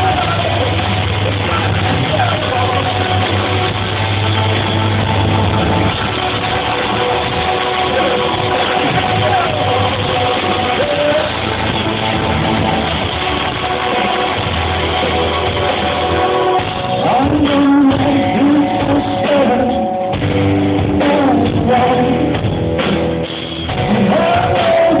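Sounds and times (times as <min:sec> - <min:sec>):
person singing: 0:00.0 - 0:03.8, 0:06.4 - 0:11.7, 0:13.8 - 0:20.2, 0:20.8 - 0:22.6, 0:23.7 - 0:25.0
rock band playing live: 0:00.0 - 0:25.0.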